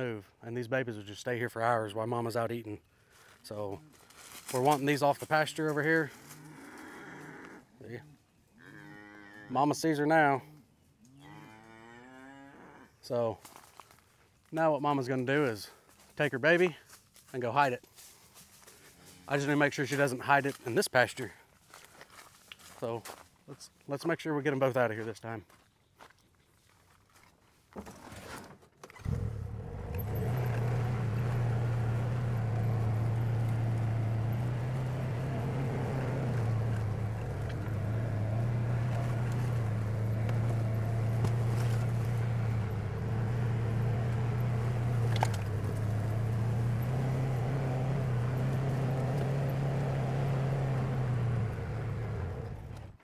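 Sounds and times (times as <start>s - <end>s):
vehicle engine droning: 29.0s - 53.0s.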